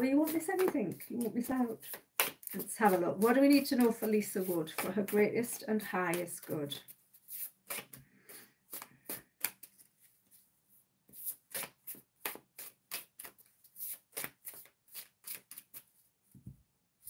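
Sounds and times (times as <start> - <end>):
cards being shuffled: 6.8 - 10.4, 11.1 - 16.0.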